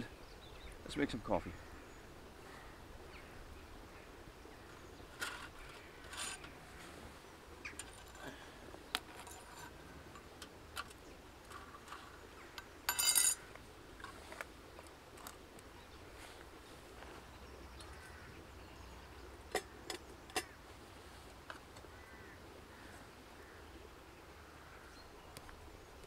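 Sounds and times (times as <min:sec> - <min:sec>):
metal camp kit clicking and tapping: 0:05.1 - 0:06.6, 0:07.6 - 0:15.7, 0:19.5 - 0:20.6, 0:21.4 - 0:21.9.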